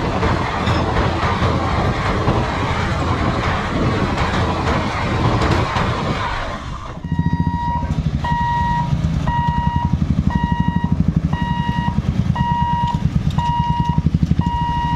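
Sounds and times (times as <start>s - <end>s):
train coaches rushing past: 0.0s - 6.6s
motorcycle engines running: 0.0s - 14.9s
level crossing warning beeps: 7.0s - 14.9s.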